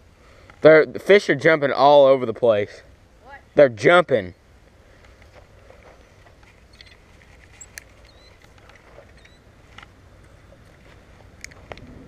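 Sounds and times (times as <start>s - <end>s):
steady low rumble: 6.6s - 12.0s
short high chirps: 8.1s - 8.4s.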